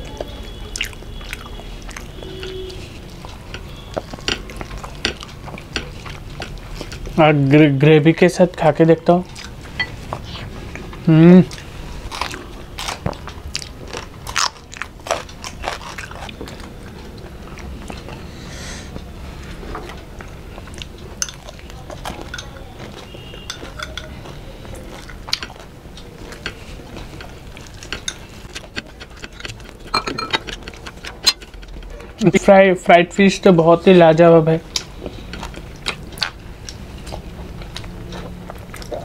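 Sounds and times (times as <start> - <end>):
chewing and crunching food: 0.0 - 32.6, 33.3 - 39.0
metal spoon clinking on glass bowl: 21.2 - 21.5, 22.2 - 24.3, 27.9 - 31.6.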